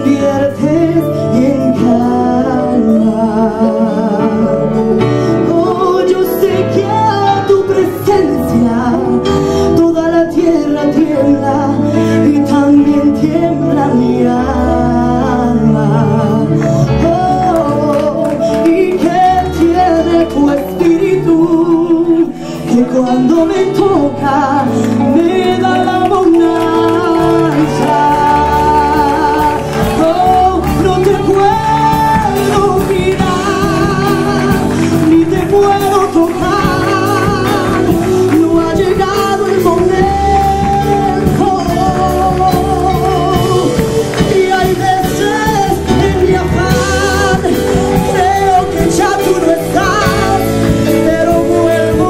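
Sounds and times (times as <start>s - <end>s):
electric guitar: 0.0s - 52.0s
keyboard: 0.0s - 52.0s
woman singing through microphone: 0.0s - 52.0s
drums: 22.6s - 52.0s.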